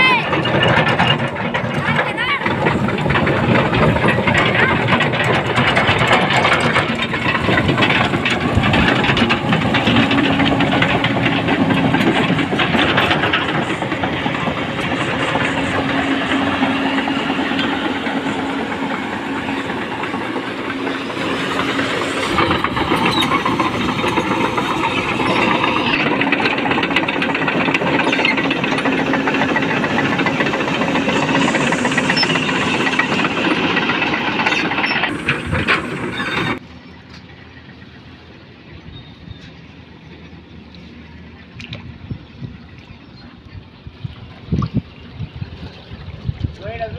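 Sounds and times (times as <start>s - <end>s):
steel tracks clanking in water: 0.0s - 36.7s
diesel engine droning: 0.0s - 46.9s.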